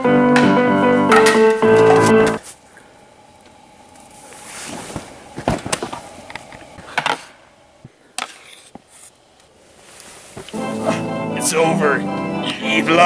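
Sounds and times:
scuffling and shuffling: 0:01.3 - 0:02.7, 0:04.1 - 0:06.7, 0:07.8 - 0:11.4.

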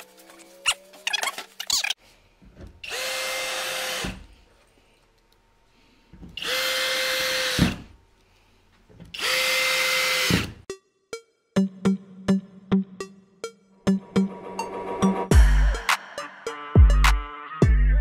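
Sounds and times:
cordless drill driving screws: 0:02.8 - 0:04.2, 0:06.4 - 0:07.8, 0:09.1 - 0:10.6.

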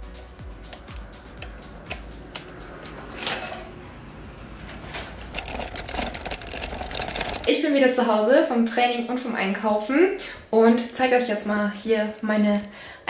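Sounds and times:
shopping cart rattling on paving: 0:03.0 - 0:03.7, 0:04.5 - 0:07.6.

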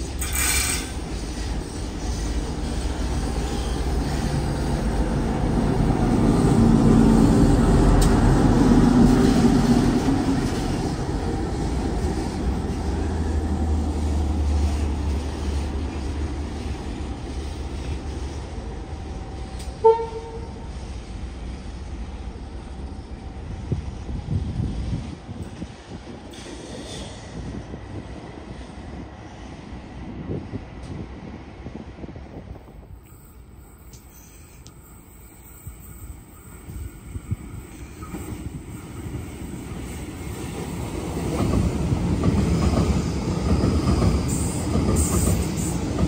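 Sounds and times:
diesel locomotive engine rumble: 0:00.0 - 0:46.0
train horn toot: 0:19.7 - 0:20.8.

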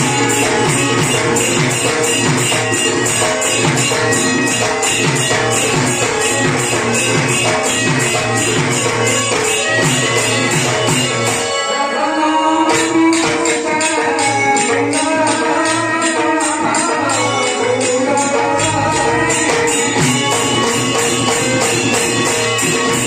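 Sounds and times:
barrel drum beat: 0:00.0 - 0:11.4, 0:18.2 - 0:23.0
jingling percussion: 0:00.0 - 0:23.0
man singing into a microphone: 0:11.5 - 0:20.8.

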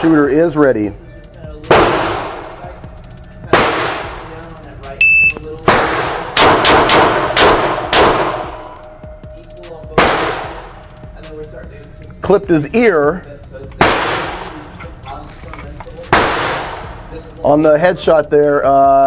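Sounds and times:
gunshots echoing indoors: 0:01.7 - 0:02.7, 0:03.5 - 0:04.3, 0:05.6 - 0:08.9, 0:09.9 - 0:10.9, 0:13.8 - 0:14.7, 0:16.1 - 0:17.0
short high electronic beep: 0:05.0 - 0:05.4.

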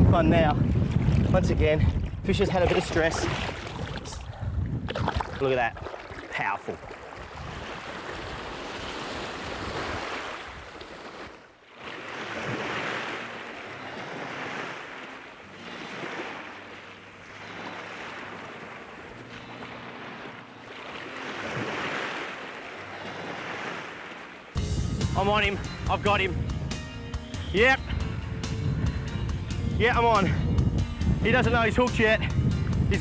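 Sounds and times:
wind: 0:00.0 - 0:33.0
small waves breaking on beach: 0:02.4 - 0:24.6.

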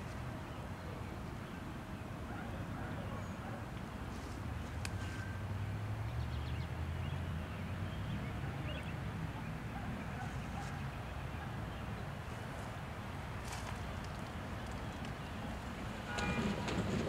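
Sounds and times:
distant diesel locomotive rumble: 0:13.4 - 0:17.0.

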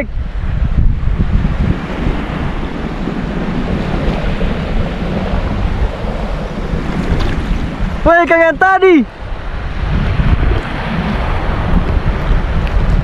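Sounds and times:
wind on microphone: 0:00.0 - 0:13.0
shallow sea water washing: 0:01.4 - 0:08.4.

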